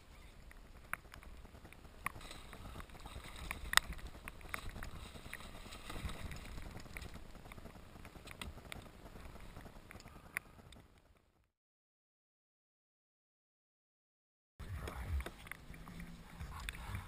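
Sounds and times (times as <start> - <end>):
water splashing: 1.8 - 9.9.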